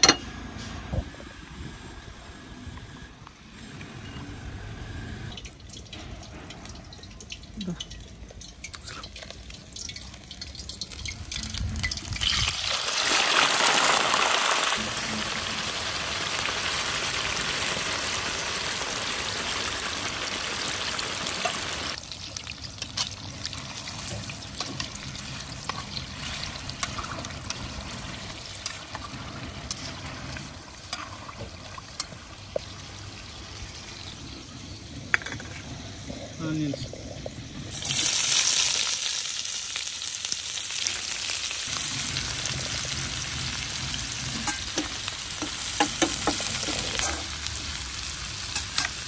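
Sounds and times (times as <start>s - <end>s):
oil crackling and popping: 5.3s - 33.0s, 37.2s - 49.0s
chicken sizzling in hot oil: 8.3s - 34.9s, 37.4s - 49.0s.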